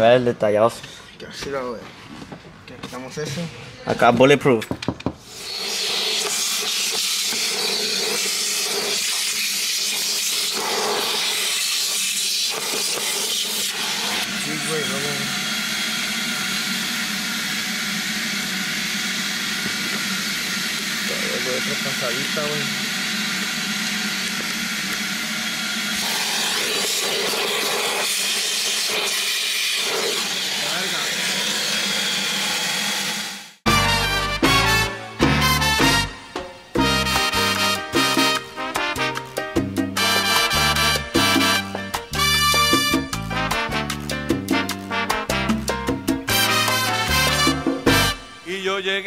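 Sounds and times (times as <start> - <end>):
vacuum cleaner running: 5.2 - 33.6, 46.3 - 48.6.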